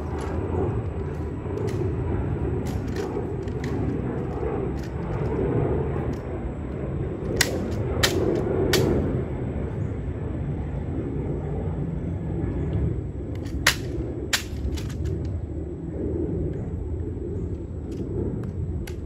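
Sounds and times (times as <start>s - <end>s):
outdoor rumble: 0.0s - 19.0s
rifle clacks: 2.6s - 5.3s, 7.2s - 9.0s, 13.4s - 15.3s
rifle ticks and taps: 2.6s - 5.3s, 7.3s - 9.0s, 13.4s - 15.3s, 17.9s - 19.0s.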